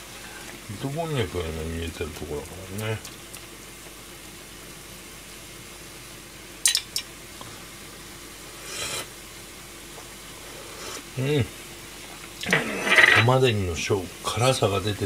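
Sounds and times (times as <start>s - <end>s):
simmering pan hiss: 0.0s - 15.0s
metal spoon scraping frying pan: 12.4s - 13.3s.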